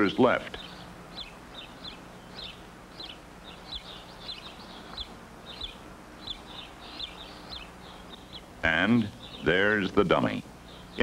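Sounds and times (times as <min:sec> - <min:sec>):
faint low hum: 0:00.0 - 0:11.0
small birds chirping: 0:00.0 - 0:11.0.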